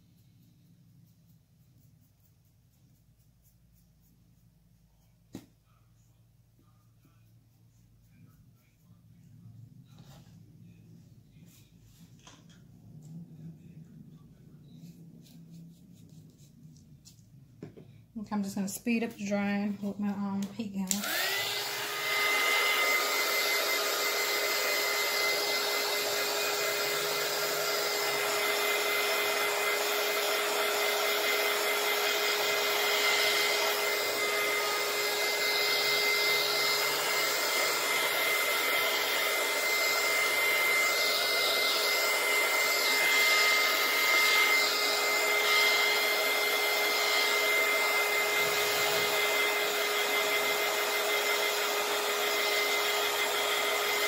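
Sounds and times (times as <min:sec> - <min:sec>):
heat gun blowing air: 0:21.0 - 0:54.0.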